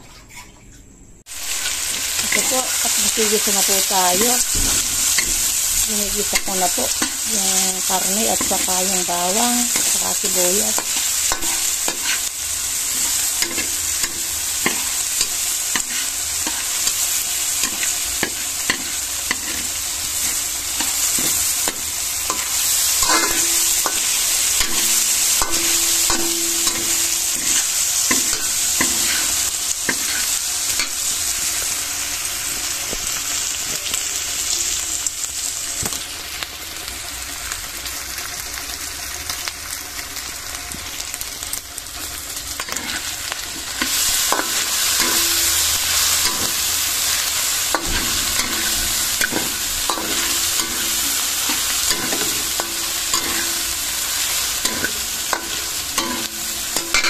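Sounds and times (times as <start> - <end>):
food sizzling in hot oil: 1.3 - 57.0.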